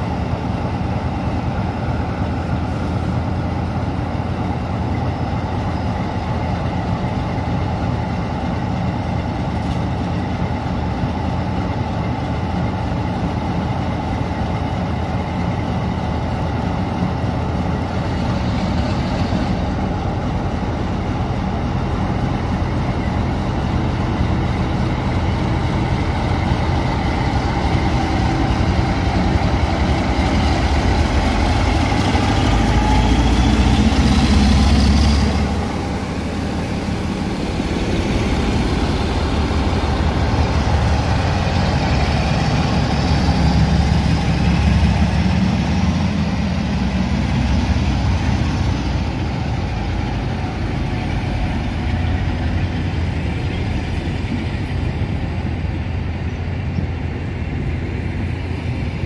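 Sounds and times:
diesel locomotive engine rumbling: 0.0s - 59.0s
climbing engine whine: 18.1s - 59.0s.

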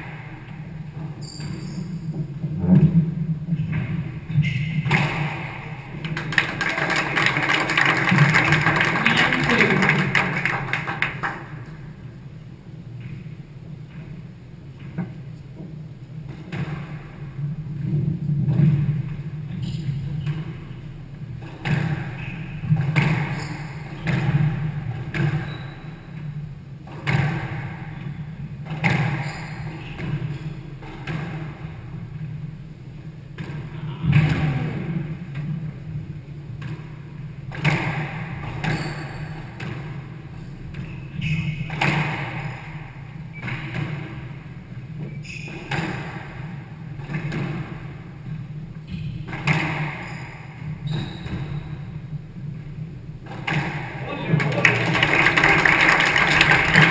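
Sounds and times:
squash ball hitting rackets: 3.6s - 11.7s, 16.2s - 19.0s, 21.4s - 32.2s, 33.3s - 35.7s, 36.6s - 48.3s, 49.0s - 51.6s, 53.2s - 55.3s.

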